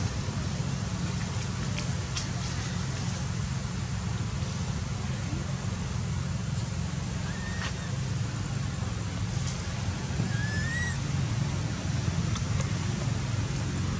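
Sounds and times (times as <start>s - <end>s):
low outdoor rumble: 0.0s - 13.9s
faint whistle-like calls: 7.2s - 8.1s, 10.2s - 11.0s.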